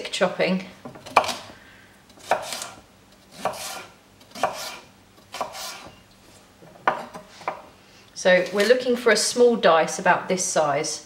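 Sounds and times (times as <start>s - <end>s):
knife cutting celery on wooden board: 2.2s - 6.0s.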